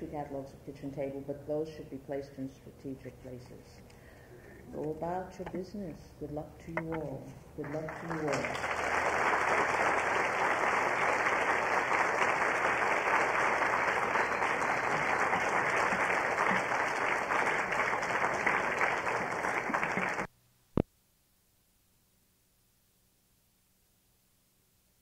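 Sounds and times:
audience applauding: 0:07.6 - 0:20.3.

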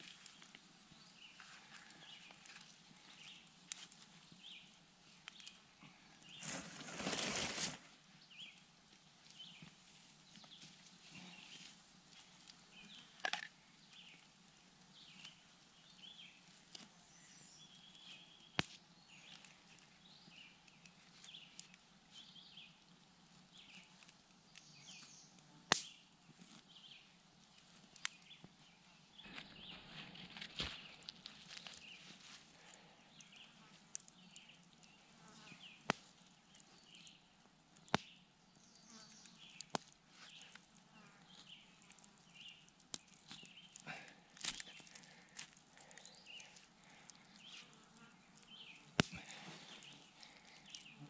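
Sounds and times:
small birds chirping faintly: 0:00.0 - 0:51.0
brief rustle: 0:06.4 - 0:07.8.

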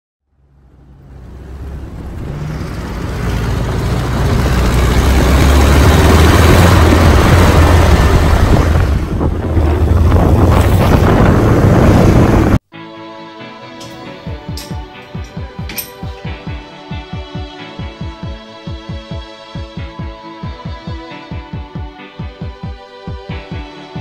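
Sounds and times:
truck engine rumble: 0:00.2 - 0:12.6
wind buffeting microphone: 0:04.3 - 0:12.6.

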